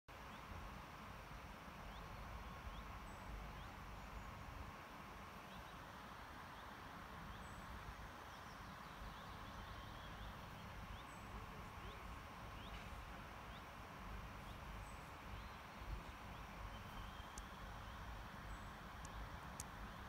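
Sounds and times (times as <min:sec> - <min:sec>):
birds chirping: 0:01.8 - 0:20.0
distant electric train rumble: 0:10.1 - 0:20.0.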